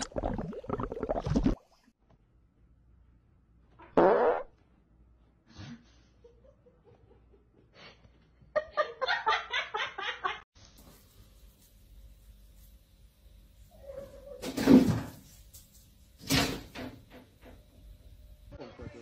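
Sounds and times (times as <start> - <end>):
person farting: 3.8 - 4.6.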